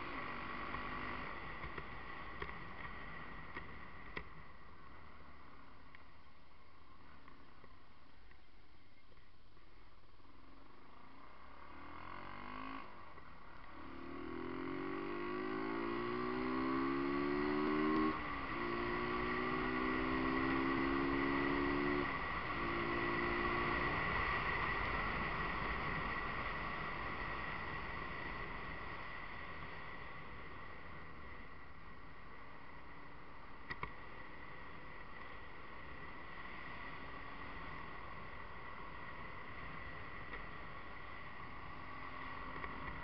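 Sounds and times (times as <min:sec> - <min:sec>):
wind and road noise: 0:00.0 - 0:43.0
motorcycle engine accelerating: 0:10.8 - 0:32.1.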